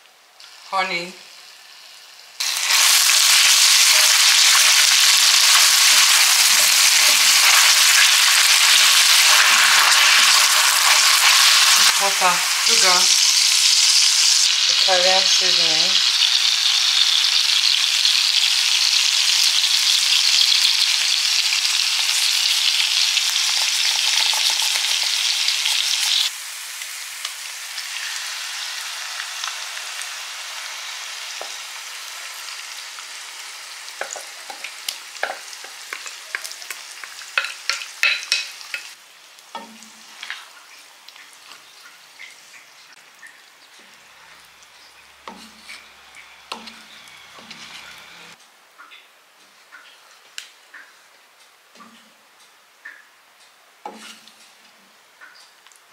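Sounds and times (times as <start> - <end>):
onions sizzling in hot oil: 0.3 - 48.4, 53.8 - 54.6
wooden spoon stirring in pan: 34.0 - 38.9, 45.2 - 48.4, 53.8 - 54.6.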